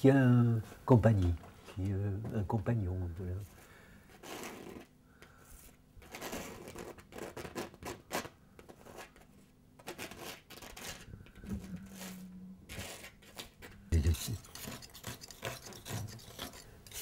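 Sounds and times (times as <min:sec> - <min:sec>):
painting tool scratching canvas: 0:04.1 - 0:04.9, 0:05.5 - 0:17.0.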